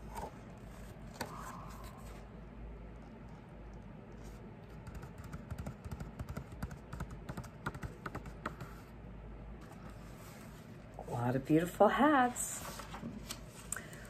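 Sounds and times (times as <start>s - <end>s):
light taps and clicks of pages: 4.7s - 8.8s.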